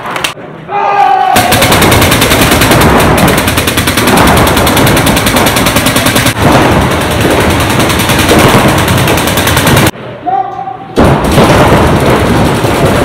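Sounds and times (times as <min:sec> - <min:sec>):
paintball markers firing: 0:01.4 - 0:09.9.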